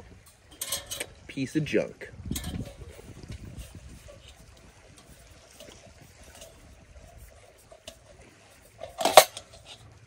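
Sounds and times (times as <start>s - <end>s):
creek flowing: 0.0s - 10.0s
heater handled on gas canister: 0.2s - 1.2s, 2.3s - 4.4s, 5.0s - 9.9s.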